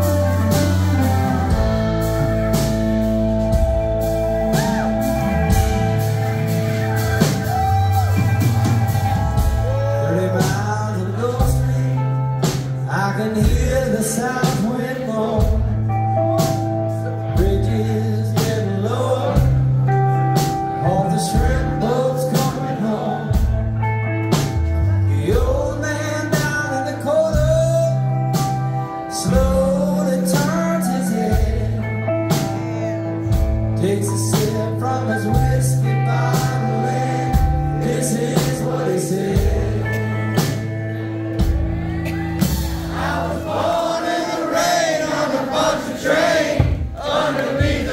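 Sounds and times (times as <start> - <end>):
live rock band: 0.0 - 47.9
male lead vocals: 9.2 - 46.6.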